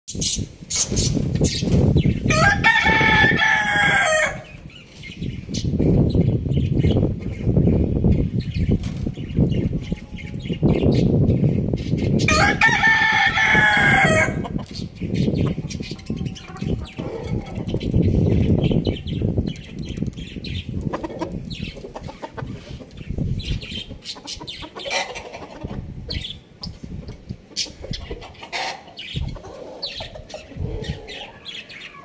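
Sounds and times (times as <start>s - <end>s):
roosters clucking: 0.2s - 32.0s.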